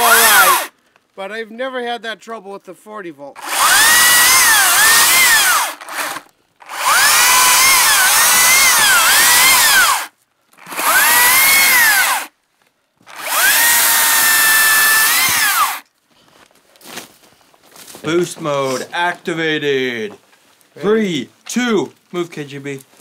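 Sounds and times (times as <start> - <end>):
cordless chainsaw cutting wood: 0.0 - 0.7, 3.4 - 12.3, 13.0 - 15.8.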